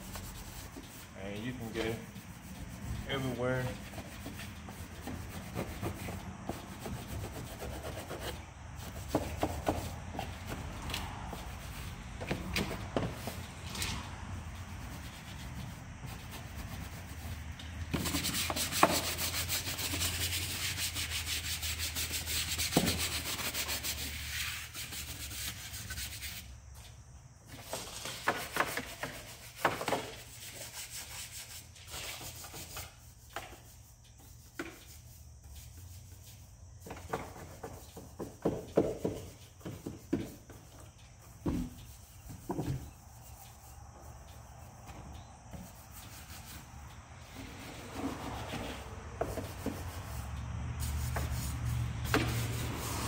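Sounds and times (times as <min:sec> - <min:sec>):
brush scrubbing engine parts: 0:00.0 - 0:26.5, 0:27.6 - 0:44.9, 0:45.5 - 0:53.0.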